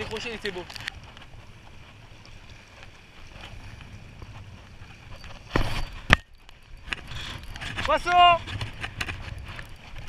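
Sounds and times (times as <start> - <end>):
choppy water at shoreline: 0.0 - 10.0
wind buffeting microphone: 0.0 - 10.0
microphone handling noise: 4.3 - 10.0.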